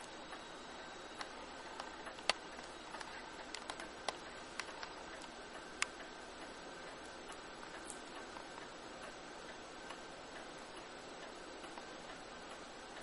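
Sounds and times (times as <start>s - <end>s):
faint steady hiss: 0.0s - 13.0s
computer controls clicking: 1.2s - 6.0s.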